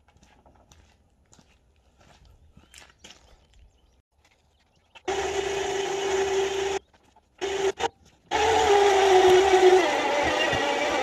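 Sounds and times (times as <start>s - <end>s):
electric winch whining: 5.1s - 6.8s, 7.4s - 11.0s.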